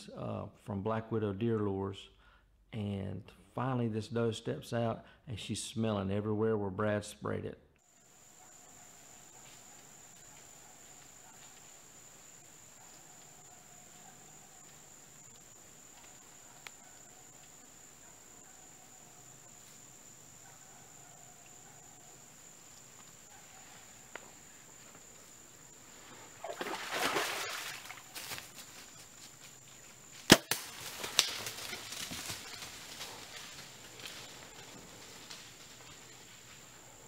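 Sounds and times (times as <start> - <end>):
crickets chirping: 7.8 - 37.0.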